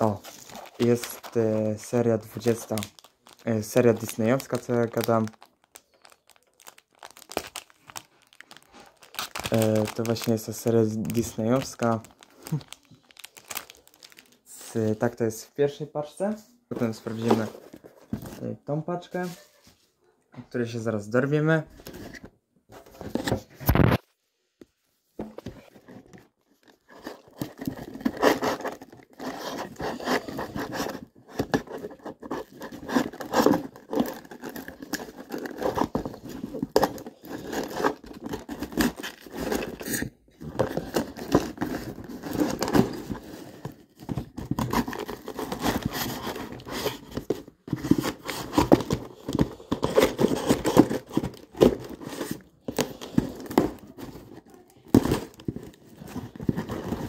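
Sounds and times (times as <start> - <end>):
cardboard box being opened: 0.0 - 1.4, 25.2 - 57.0.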